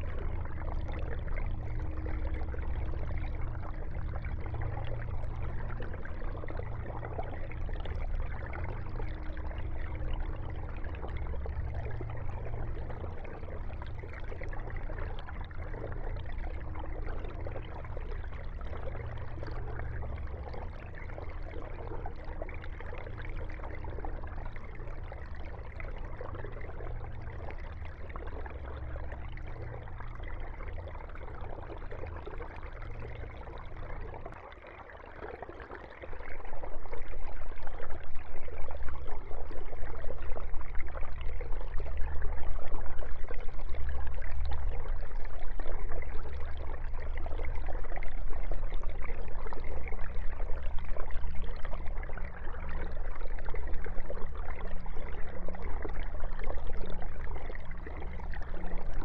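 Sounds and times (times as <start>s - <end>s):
aquarium water bubbling: 0.0s - 59.0s
low steady hum: 0.0s - 59.0s.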